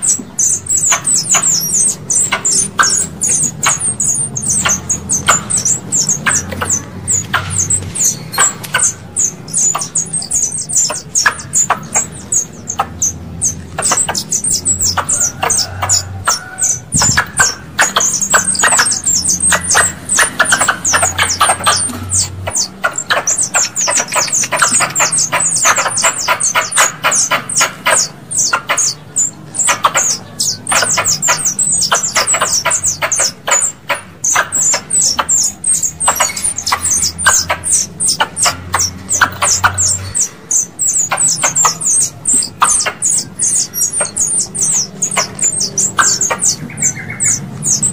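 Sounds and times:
squirrel chirps: 0.0 - 47.9.

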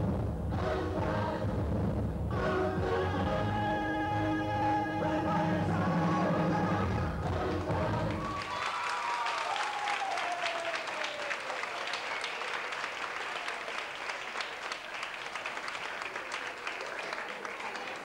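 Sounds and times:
audience applauding: 7.3 - 18.0.

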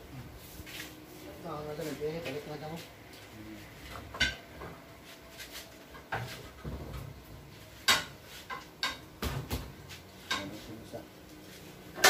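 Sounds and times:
knocks and metallic clanks: 7.8 - 10.5.

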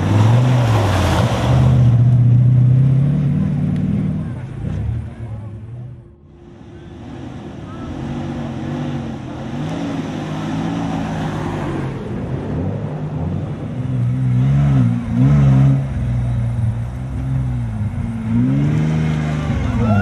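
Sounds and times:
engine revving: 6.4 - 20.0.

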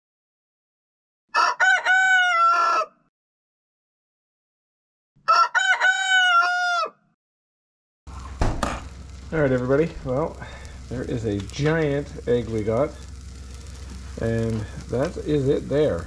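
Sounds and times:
rooster crowing: 1.3 - 3.1, 5.2 - 7.2.

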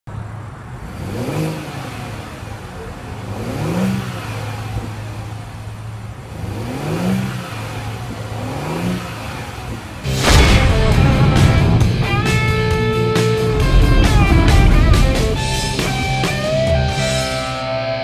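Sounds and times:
car engine idling and revving: 0.1 - 18.0.

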